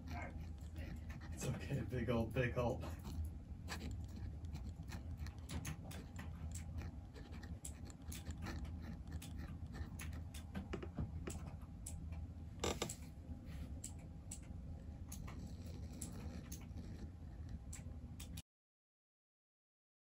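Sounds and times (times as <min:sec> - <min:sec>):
pen nib scratching on paper: 0:00.0 - 0:11.4, 0:15.1 - 0:18.4
low steady hum: 0:00.0 - 0:18.4.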